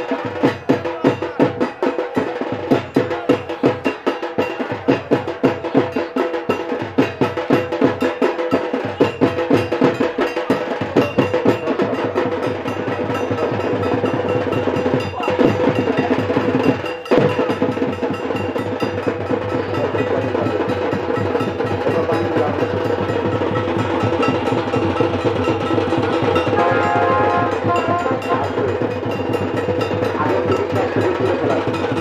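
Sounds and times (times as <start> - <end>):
fast folk drumming: 0.0 - 32.0
held pitched tone: 24.0 - 29.1.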